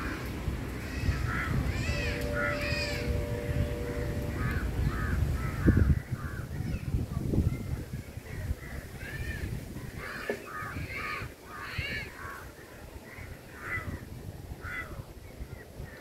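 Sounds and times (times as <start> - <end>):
low background rumble: 0.3 - 6.1.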